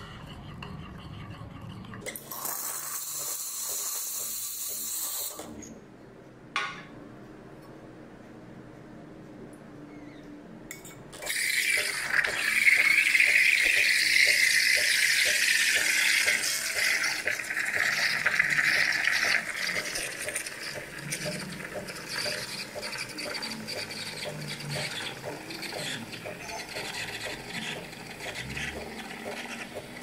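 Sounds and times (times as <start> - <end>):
faint regular ticking: 11.8 - 30.0.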